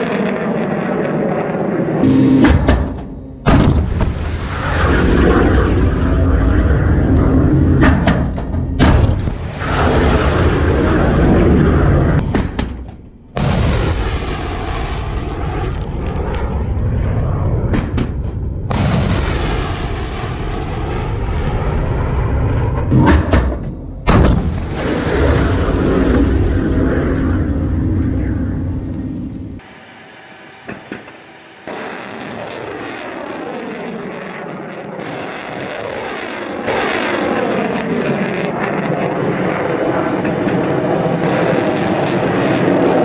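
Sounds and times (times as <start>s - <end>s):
rocket motors roaring: 0.0s - 43.0s
sharp bangs: 2.0s - 15.7s, 17.6s - 21.7s, 22.6s - 27.4s, 28.5s - 33.7s.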